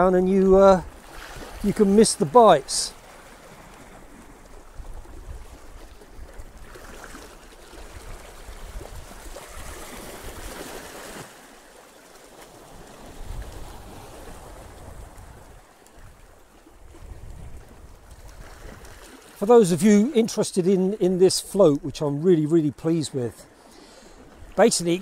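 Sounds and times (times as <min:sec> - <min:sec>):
sea water sloshing over rocks: 0:00.8 - 0:19.4
wind rumble on microphone: 0:04.1 - 0:06.8, 0:07.7 - 0:10.6, 0:12.7 - 0:19.1.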